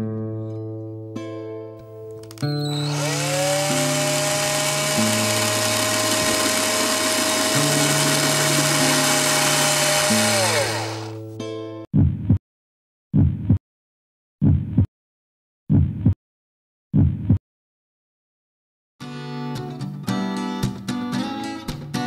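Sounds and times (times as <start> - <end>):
cordless drill motor whine: 2.5 - 11.2.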